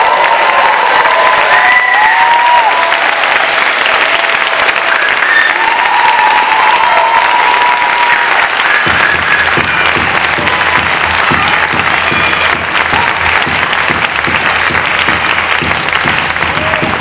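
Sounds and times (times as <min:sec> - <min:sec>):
audience applauding: 0:00.0 - 0:17.0
cheering calls: 0:00.0 - 0:17.0.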